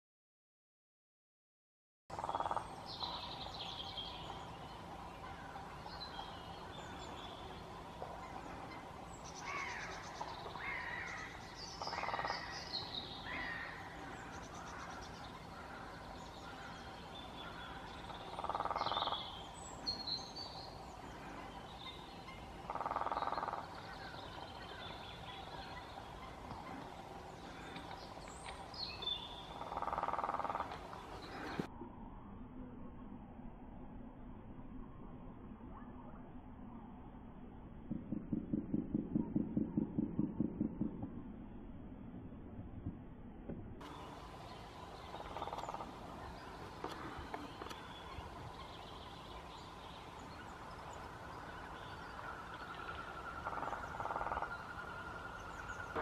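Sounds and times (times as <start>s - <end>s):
woodpecker drumming on a tree: 2.1s - 3.6s, 4.3s - 31.7s, 37.8s - 41.5s, 42.8s - 56.0s
high bird calls and chirps: 2.2s - 31.7s.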